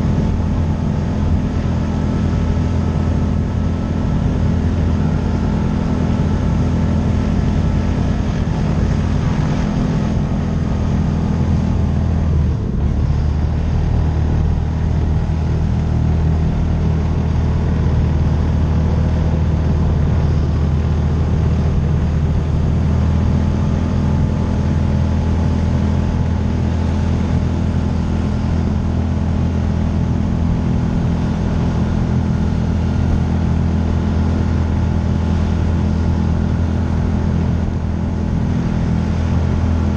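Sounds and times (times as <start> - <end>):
vehicle engine running: 0.0 - 39.9.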